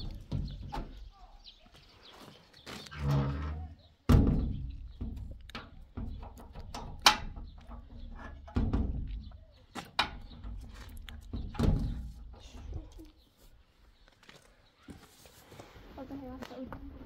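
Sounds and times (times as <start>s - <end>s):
metal door thunks and knocks: 0.0s - 1.1s, 4.0s - 12.9s
metallic latch clicks: 4.8s - 8.7s.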